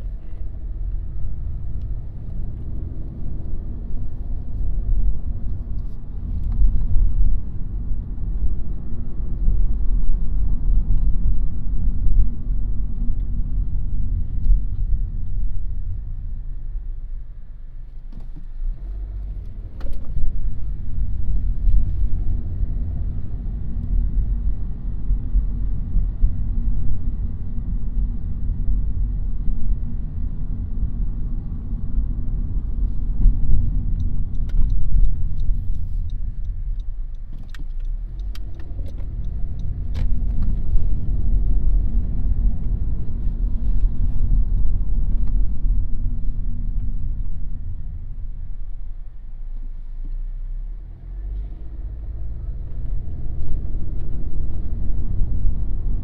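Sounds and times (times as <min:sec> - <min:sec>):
car road and engine rumble: 0:00.0 - 0:56.0
light ticks: 0:33.0 - 0:42.8.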